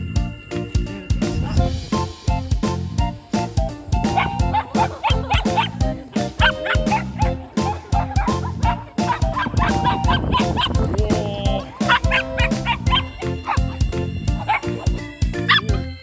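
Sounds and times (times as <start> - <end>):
upbeat music with drum beat: 0.0 - 16.0
dogs barking and yipping: 3.4 - 16.0.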